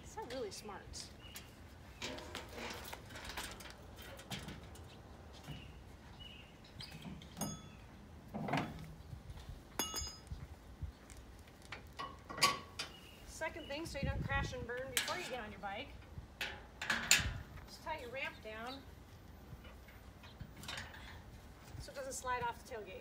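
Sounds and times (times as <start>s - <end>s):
metal ramps clanking and rattling: 2.0s - 5.7s, 6.8s - 8.9s, 11.8s - 13.0s, 16.4s - 17.5s
metallic clinks: 7.4s - 7.8s, 9.8s - 10.3s.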